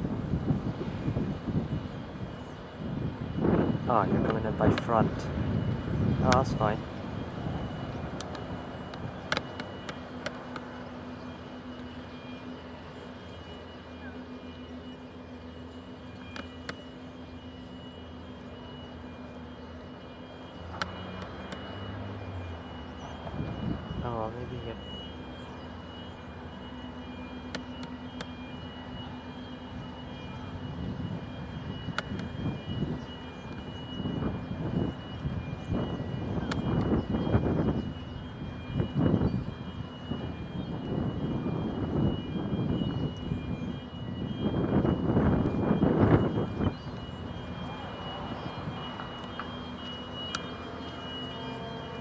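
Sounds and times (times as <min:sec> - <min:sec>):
ferry engines droning: 0:00.0 - 0:52.0
thin steady high tones: 0:00.3 - 0:52.0
sharp clicks: 0:08.2 - 0:10.7, 0:16.2 - 0:16.8.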